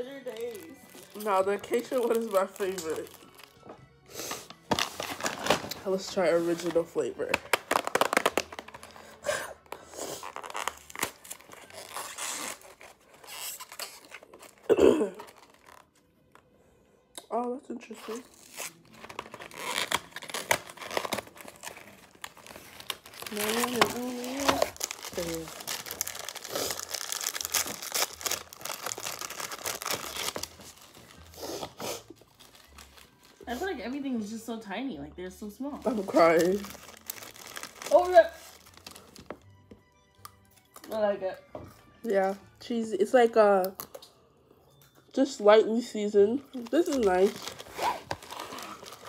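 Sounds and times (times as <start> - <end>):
plastic wrapper crinkling: 0.0 - 3.7, 4.4 - 16.5, 17.9 - 33.7, 35.8 - 39.7, 46.4 - 49.0
cardboard packaging tearing: 0.2 - 3.5, 4.4 - 16.0, 17.9 - 33.4, 35.8 - 39.4, 46.5 - 49.0.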